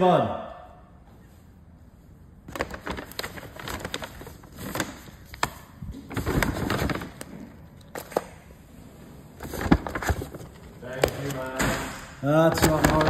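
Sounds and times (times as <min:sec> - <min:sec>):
paper bag and plastic rustling: 0:02.4 - 0:08.4, 0:09.4 - 0:13.0.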